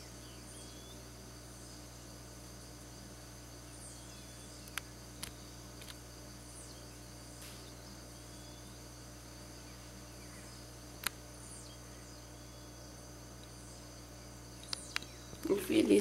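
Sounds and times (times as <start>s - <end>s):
high-pitched insect chorus: 0.0s - 16.0s
sharp click: 11.0s - 11.2s.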